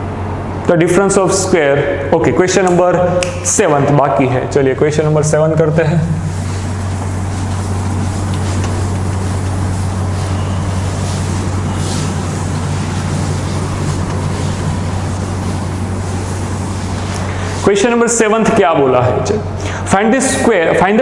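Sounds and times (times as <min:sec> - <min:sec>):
low electrical hum: 0:00.0 - 0:21.0
background hiss: 0:02.6 - 0:20.8
cloth wiping a chalkboard: 0:05.1 - 0:18.6.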